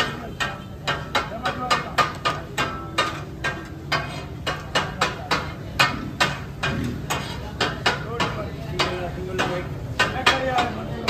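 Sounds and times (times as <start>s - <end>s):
metal spatulas striking griddle: 0.0s - 11.0s.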